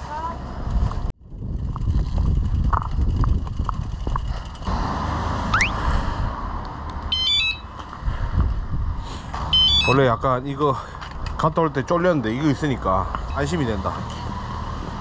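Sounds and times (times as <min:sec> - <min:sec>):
bicycle alarm electronic chirps: 0:05.5 - 0:05.8, 0:07.1 - 0:07.7, 0:09.5 - 0:10.1.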